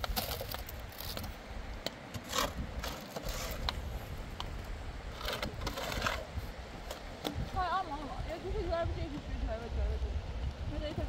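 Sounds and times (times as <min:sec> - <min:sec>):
shovel scraping into sand: 0:02.2 - 0:03.9, 0:05.1 - 0:06.4.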